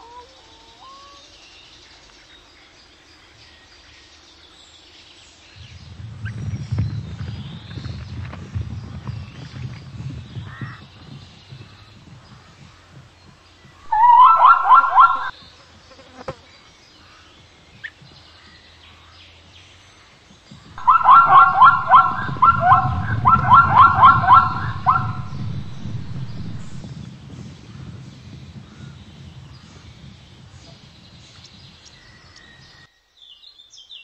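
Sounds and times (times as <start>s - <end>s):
low rumble: 5.6s - 12.2s, 20.6s - 30.5s
zebra barking: 13.9s - 15.3s, 20.8s - 26.8s.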